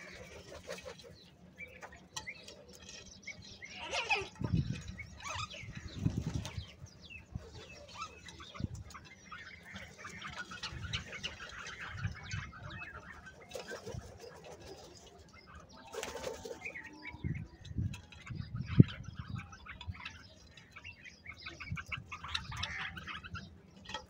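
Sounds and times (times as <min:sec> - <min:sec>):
crows calling: 0:20.5 - 0:23.6.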